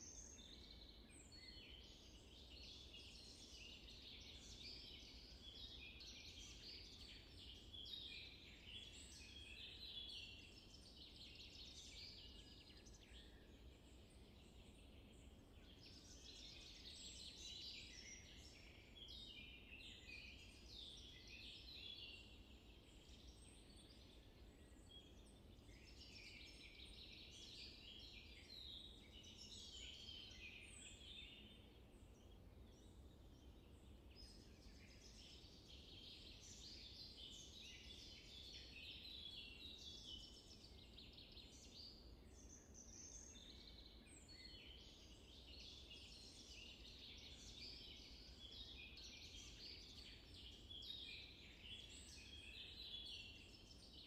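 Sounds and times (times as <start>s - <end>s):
small birds chirping: 0.0s - 54.0s.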